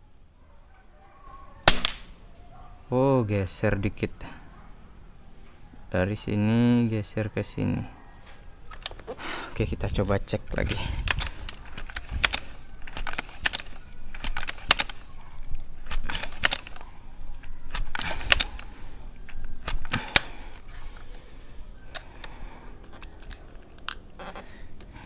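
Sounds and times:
air rifle pump clacks: 9.9 - 21.2.

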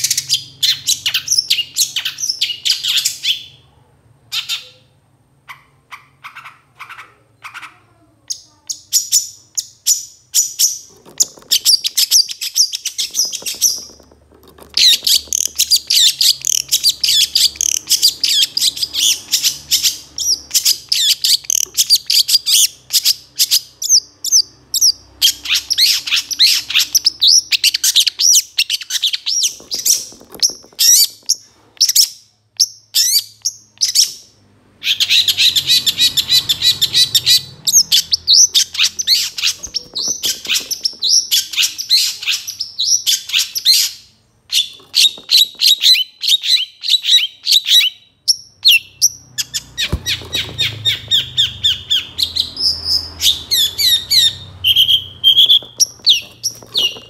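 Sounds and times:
bird singing chirps and trills: 44.6 - 57.0.

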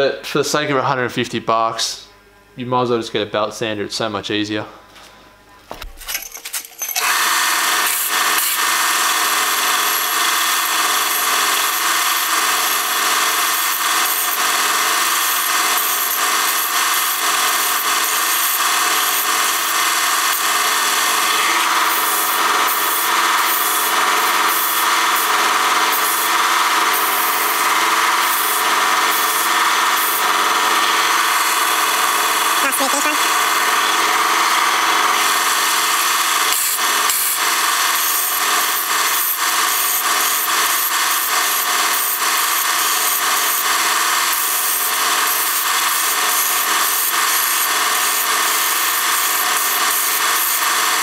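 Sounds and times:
metal pieces knocking: 5.8 - 7.0
belt sander grinding steel: 6.8 - 51.0.

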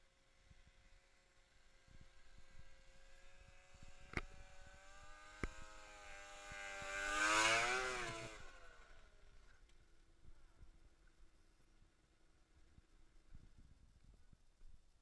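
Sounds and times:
snowmobile engine passing by: 0.0 - 9.5.

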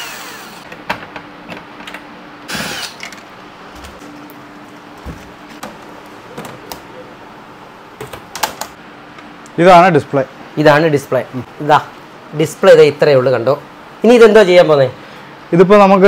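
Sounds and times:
cordless drill whirring: 0.0 - 0.6.

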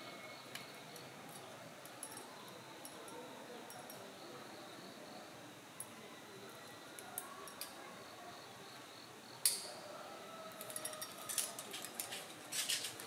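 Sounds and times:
metal climbing gear clinking: 0.2 - 4.1, 10.5 - 13.0.

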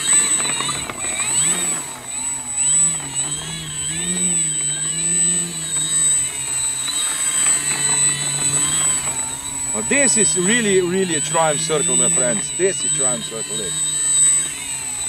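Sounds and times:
electric motor and propeller whine: 0.0 - 15.0
steady high-pitched tone: 3.3 - 15.0.

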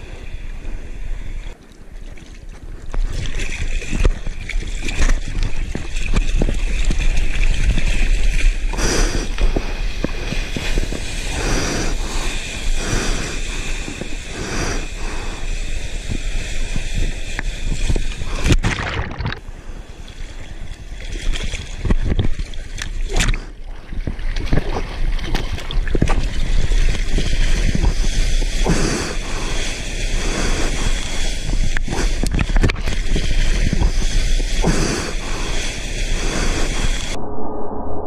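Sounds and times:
wind buffeting microphone: 2.6 - 15.0, 15.9 - 22.9.

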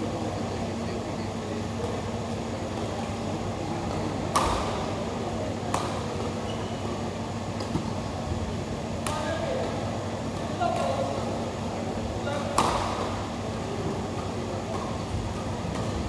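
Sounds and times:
steady low hum: 0.0 - 16.0
racket hitting shuttlecock: 3.9 - 4.9, 5.6 - 6.3, 12.3 - 13.2.

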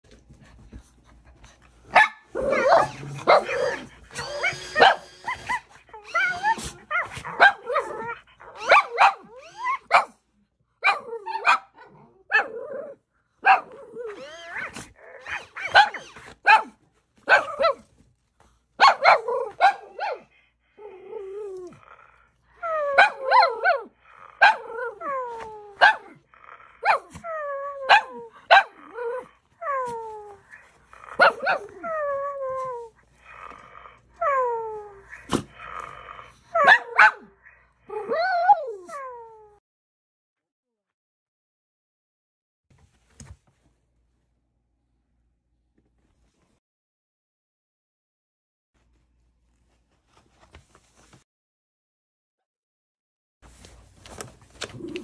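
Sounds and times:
dog barking and growling: 1.8 - 18.0, 18.8 - 39.6, 54.5 - 55.0.

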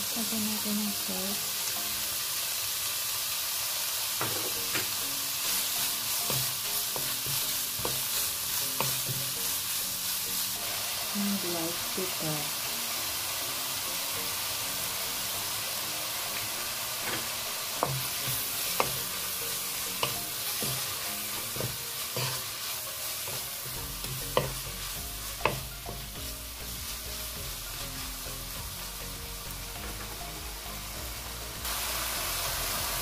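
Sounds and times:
meat sizzling in wok: 0.0 - 33.0
spatula knocking against pan: 25.4 - 25.7.

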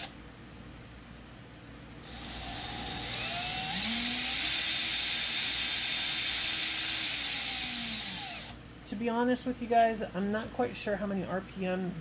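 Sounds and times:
electric drill motor whine: 2.0 - 8.6.

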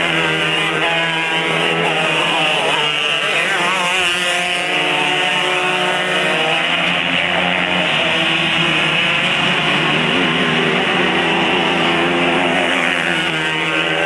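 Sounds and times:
kart engines racing: 0.0 - 14.0.

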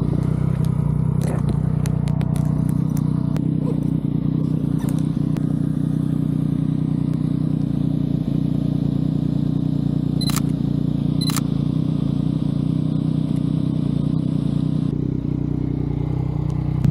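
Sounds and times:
steady low rumble: 0.0 - 16.9
camera shutter clicks: 10.2 - 10.5, 11.2 - 11.5.

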